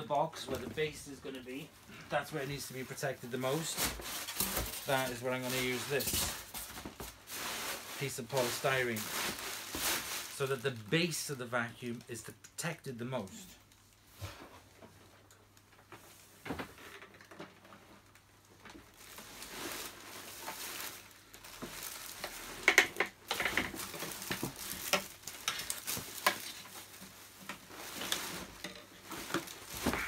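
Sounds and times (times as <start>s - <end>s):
plastic packing crinkling: 2.2s - 11.2s, 17.3s - 30.0s.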